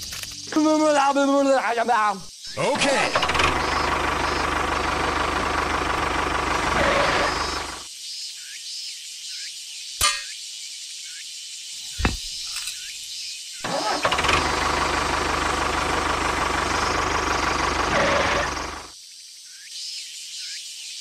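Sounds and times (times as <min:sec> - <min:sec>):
small motor droning: 0:02.9 - 0:07.9, 0:13.6 - 0:18.9.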